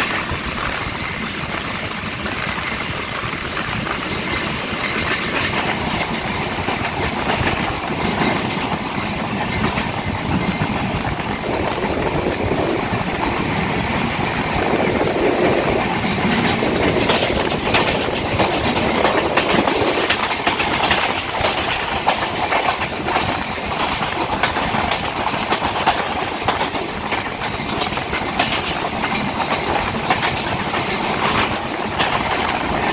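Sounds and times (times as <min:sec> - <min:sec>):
train running rumble: 0:00.0 - 0:32.9
wheels clacking over rail joints: 0:00.0 - 0:32.9.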